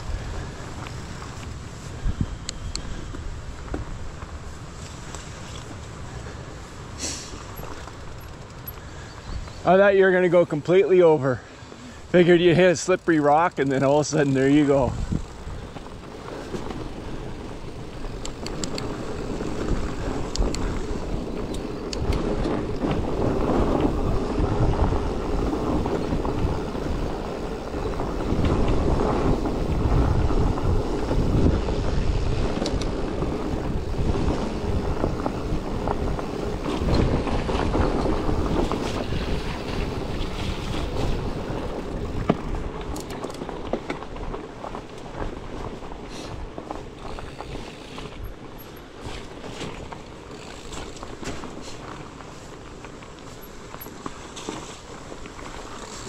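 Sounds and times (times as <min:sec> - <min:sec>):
bike rolling over rocky trail: 0:00.0 - 0:56.0
wind buffeting microphone: 0:00.0 - 0:56.0.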